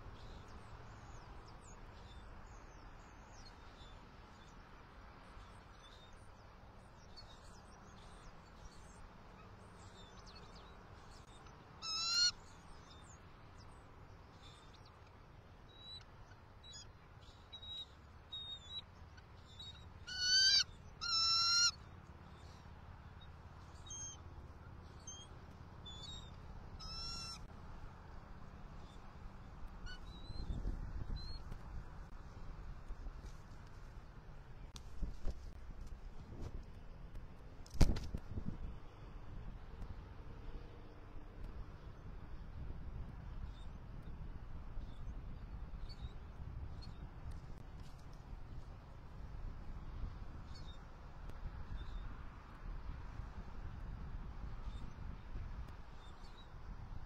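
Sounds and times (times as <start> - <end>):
eagles calling: 11.8 - 12.4, 20.1 - 21.8, 26.8 - 27.5.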